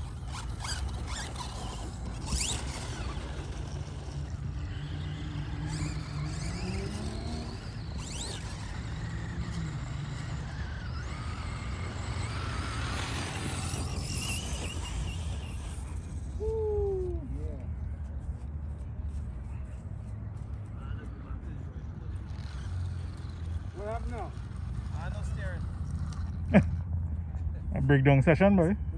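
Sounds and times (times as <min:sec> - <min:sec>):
electric rc car motor whine: 0:00.0 - 0:16.4, 0:22.0 - 0:26.5.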